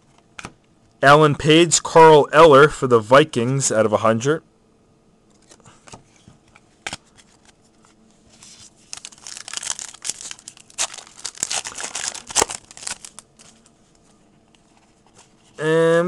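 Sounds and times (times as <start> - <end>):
foil wrapper tearing and crinkling: 8.6 - 13.4.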